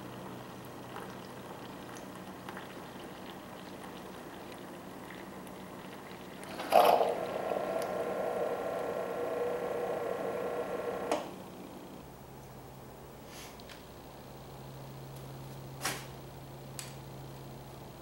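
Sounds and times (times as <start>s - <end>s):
coffee brewer humming whine: 0.0s - 18.0s
loud gurgling burst: 6.4s - 10.2s.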